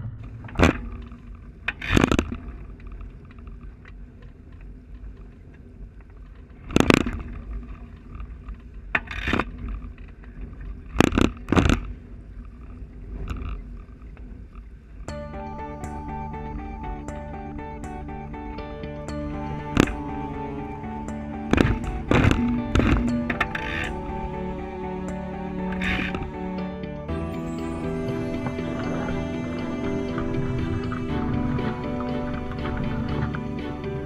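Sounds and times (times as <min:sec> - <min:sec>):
water rushing: 0:15.4 - 0:34.0.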